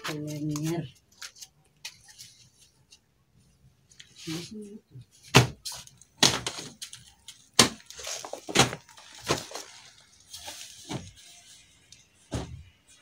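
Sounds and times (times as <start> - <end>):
bedding slapping and thumping: 7.6 - 11.2, 12.3 - 12.7.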